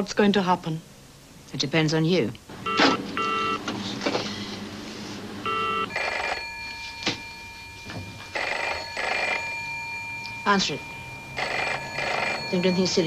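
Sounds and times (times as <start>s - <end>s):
telephone bell ringing: 2.7s - 3.6s, 5.4s - 13.0s.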